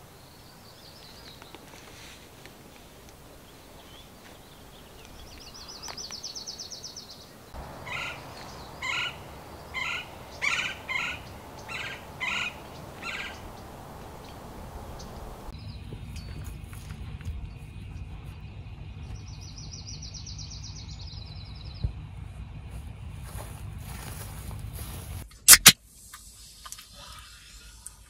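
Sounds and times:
short harsh bird calls: 0:07.5 - 0:14.3
bird high trill: 0:07.6 - 0:15.6.

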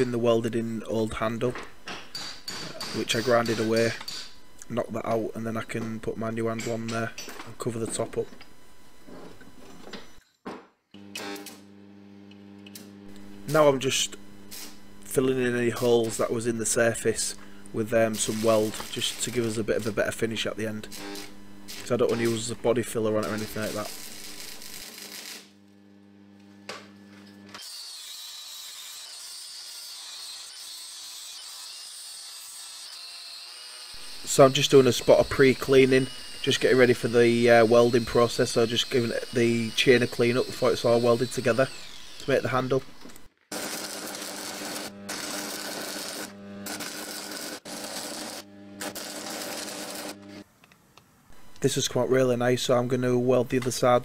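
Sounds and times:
angle grinder whining: 0:11.0 - 0:50.5
welding arc crackling: 0:12.7 - 0:25.9, 0:33.9 - 0:50.4
low steady hum: 0:13.0 - 0:24.8.

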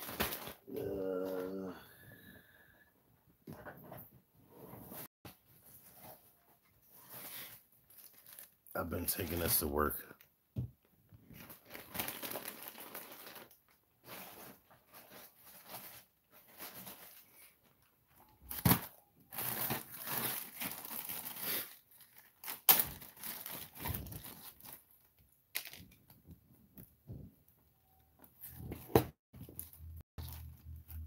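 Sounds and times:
plastic bag rustling: 0:05.3 - 0:09.6, 0:11.3 - 0:17.8, 0:18.5 - 0:25.9.

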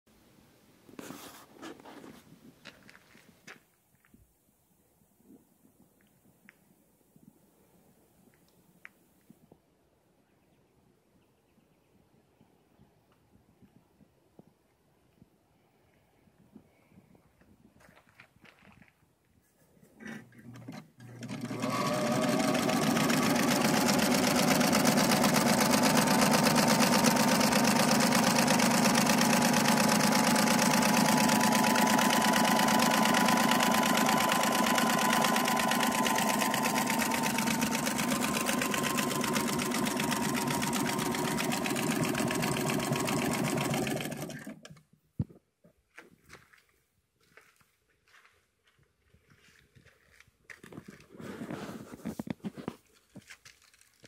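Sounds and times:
sewing machine running: 0:20.1 - 0:44.7.

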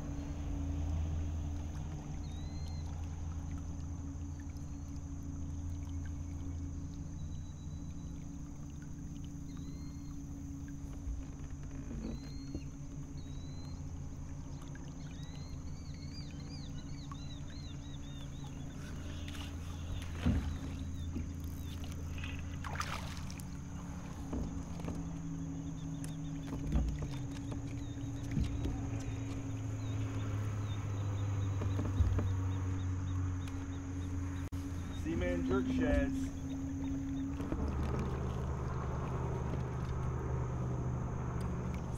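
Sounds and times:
small boat motor humming: 0:00.0 - 0:41.9
birds chirping: 0:01.8 - 0:41.9.

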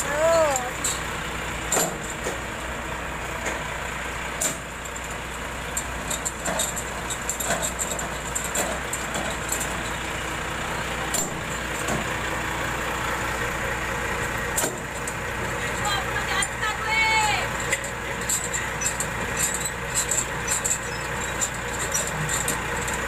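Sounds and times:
truck engine idling: 0:00.0 - 0:23.0.

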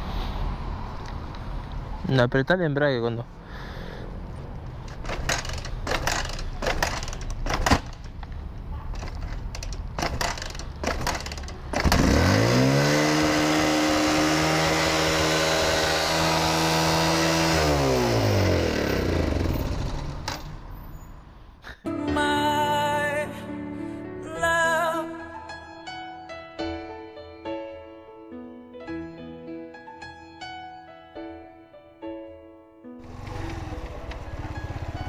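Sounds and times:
motorcycle engine starting and revving: 0:04.7 - 0:20.9, 0:33.0 - 0:35.0.

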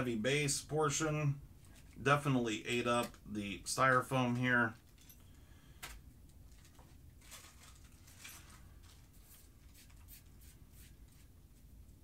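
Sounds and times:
styrofoam packing crackling: 0:06.5 - 0:10.1.

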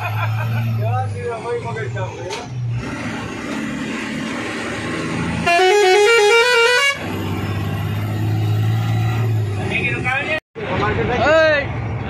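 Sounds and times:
road noise: 0:00.0 - 0:12.0
truck engine: 0:00.0 - 0:12.0
musical vehicle horn: 0:05.4 - 0:07.0.

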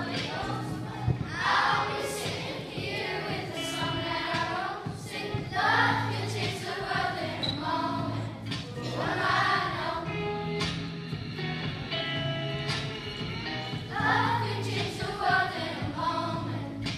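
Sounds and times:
children's choir singing: 0:00.0 - 0:10.4, 0:13.7 - 0:16.9
musical accompaniment: 0:00.0 - 0:16.9.

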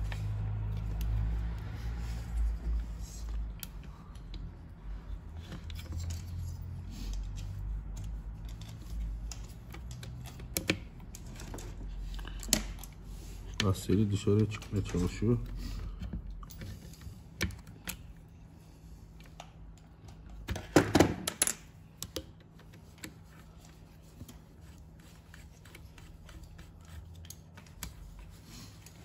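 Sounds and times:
small parts clicking and tapping: 0:05.4 - 0:13.8, 0:19.2 - 0:23.2.

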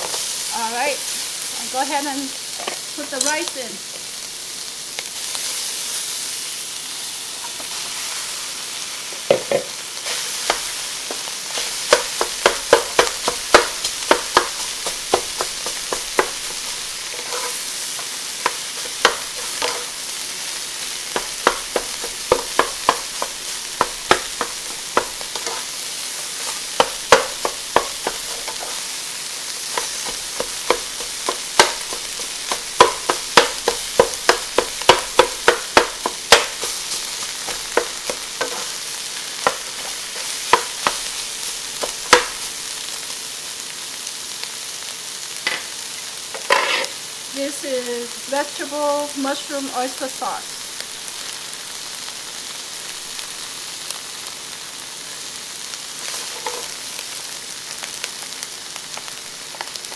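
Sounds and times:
spatula scraping and clacking on pan: 0:00.0 - 0:00.4, 0:09.1 - 0:42.6, 0:46.3 - 0:47.0, 0:56.0 - 0:56.8
rice sizzling in a wok: 0:00.0 - 0:59.9.

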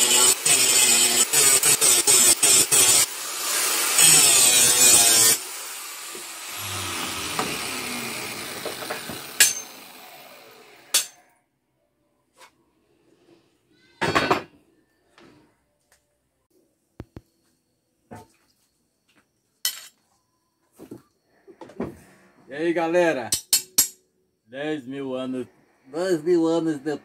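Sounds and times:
grinder disc winding down: 0:00.0 - 0:10.9
angle grinder grinding metal: 0:00.0 - 0:11.2
loud metal clank: 0:08.6 - 0:09.8.

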